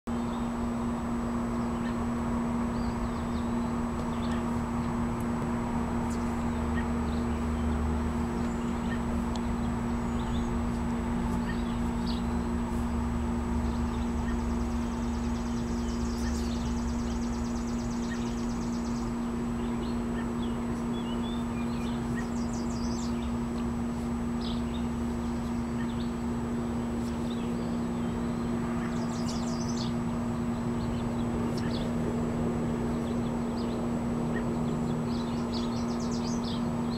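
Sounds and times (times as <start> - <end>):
birds chirping: 0.1 - 36.9
outdoor hum with low rumble: 0.1 - 36.9
bird trill: 6.1 - 10.6, 11.3 - 12.6, 13.2 - 32.0.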